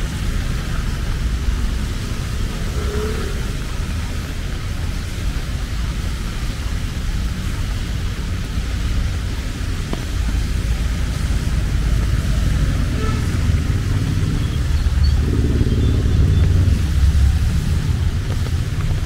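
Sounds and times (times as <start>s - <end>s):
low traffic rumble: 0.0s - 19.0s
vehicle passing close: 10.4s - 19.0s.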